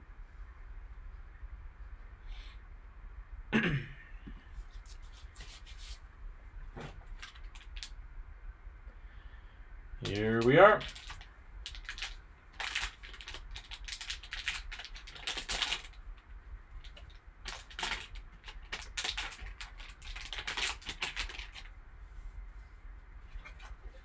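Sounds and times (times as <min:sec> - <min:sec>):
foil wrappers crinkling: 0:07.1 - 0:07.9, 0:10.0 - 0:21.7.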